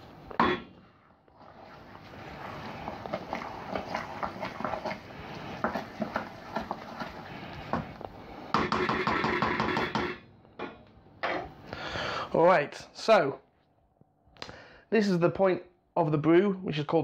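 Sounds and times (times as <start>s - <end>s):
spoon stirring grains in a pot: 1.4s - 10.1s.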